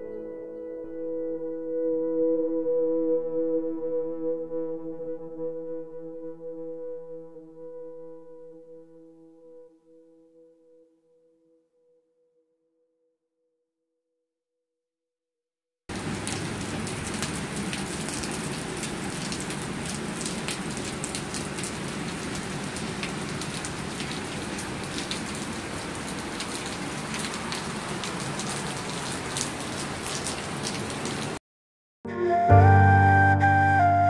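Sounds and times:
steady rain on pavement: 15.9 - 31.4.

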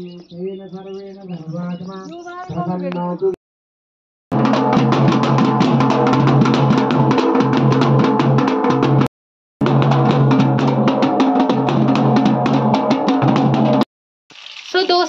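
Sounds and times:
devotional music with fast drumbeat: 4.3 - 13.8.

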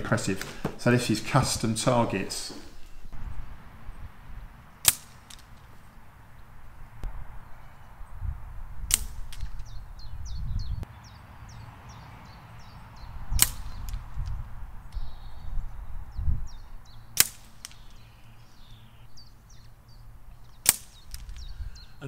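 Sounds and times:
birds chirping: 0.0 - 22.0
air rifle shots: 4.8 - 5.8, 8.8 - 9.7, 13.3 - 14.2, 17.2 - 18.1, 20.6 - 21.5.

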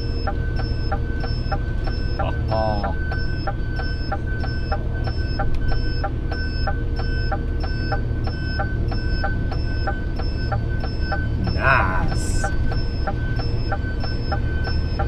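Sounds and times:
engine and road rumble: 0.0 - 15.0
turn indicator ticking: 0.2 - 11.6.

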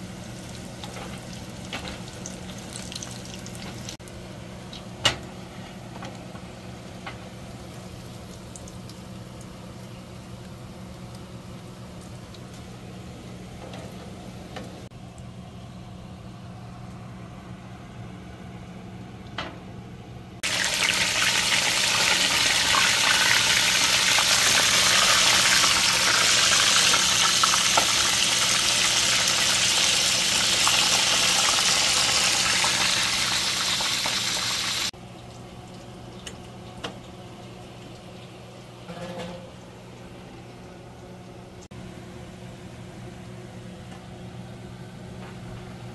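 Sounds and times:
fries sizzling in hot oil: 0.0 - 14.5, 20.4 - 38.8
low steady hum: 0.0 - 33.7.

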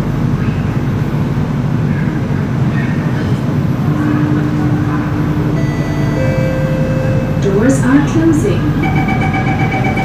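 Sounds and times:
station ambience: 0.0 - 10.0
train humming at platform: 0.0 - 10.0
steady tone: 3.2 - 10.0.

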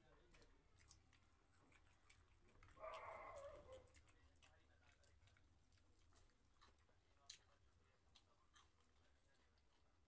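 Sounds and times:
clicks and smacks of eating: 0.0 - 10.0.

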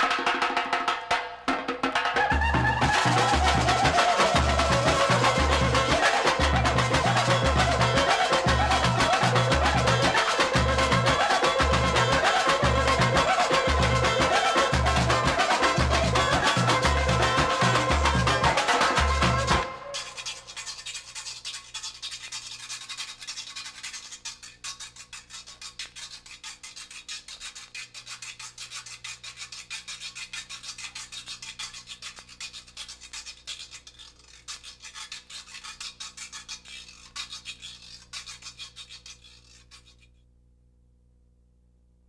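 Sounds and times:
rasping samba hand percussion: 0.0 - 40.1
faint low hum: 30.9 - 42.0.

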